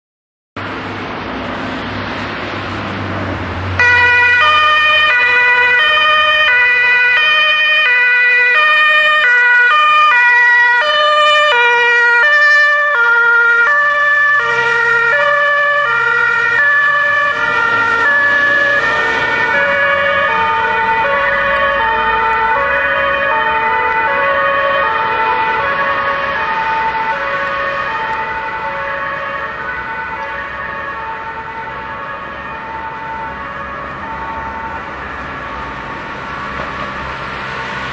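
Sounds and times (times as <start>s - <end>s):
vehicle and road noise: 0.6s - 37.9s
two-tone siren: 3.8s - 37.9s.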